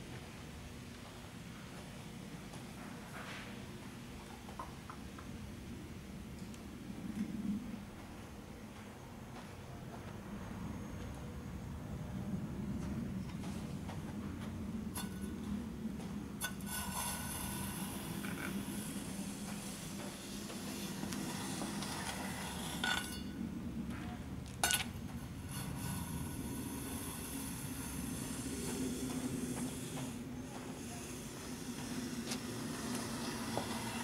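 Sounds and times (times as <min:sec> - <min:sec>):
rake scraping through gravel: 0:16.4 - 0:23.3, 0:31.8 - 0:34.0.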